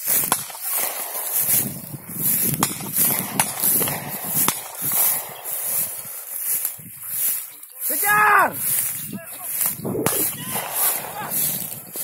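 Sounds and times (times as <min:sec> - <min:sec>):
sharp cracks: 0:00.0 - 0:06.8, 0:09.5 - 0:12.0
footsteps in vegetation: 0:00.0 - 0:12.0
vegetation rustling: 0:00.0 - 0:12.0.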